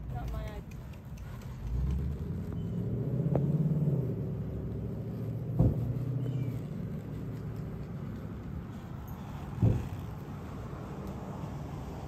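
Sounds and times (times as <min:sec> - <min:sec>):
vehicle engine and tyre rumble: 0:00.0 - 0:12.0
sharp thump: 0:05.5 - 0:06.0.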